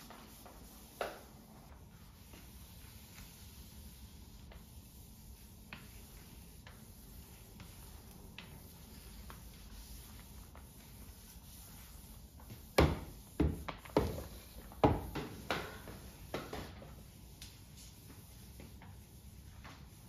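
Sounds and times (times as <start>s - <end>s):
mop knocking on furniture legs: 12.4s - 16.9s.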